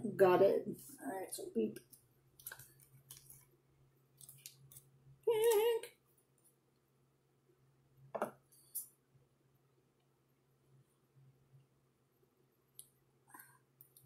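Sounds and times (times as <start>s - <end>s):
plastic bag crinkling: 2.4s - 3.5s, 4.1s - 5.8s.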